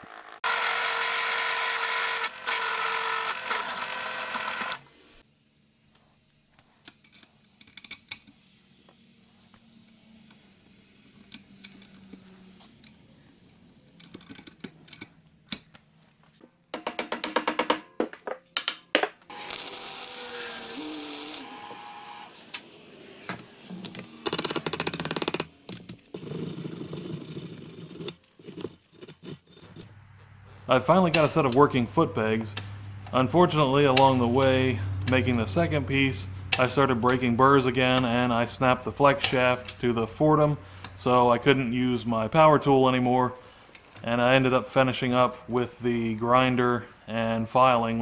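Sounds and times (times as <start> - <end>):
power tool whirring: 0.0 - 5.2, 19.3 - 25.5
small metal clicks: 11.2 - 15.8.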